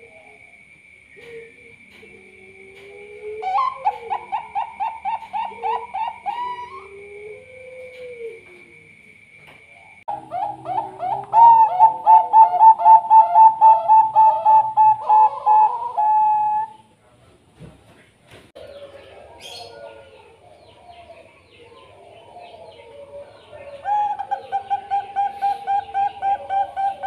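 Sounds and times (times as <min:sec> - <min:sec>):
dove cooing: 0:01.1 - 0:09.0, 0:09.9 - 0:16.9, 0:18.6 - 0:27.0.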